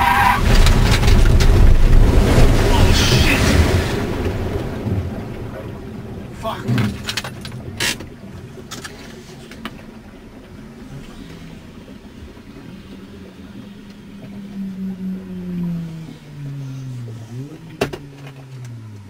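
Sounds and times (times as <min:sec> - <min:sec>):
car churning through water: 0:00.0 - 0:19.0
car engine running: 0:09.4 - 0:19.0.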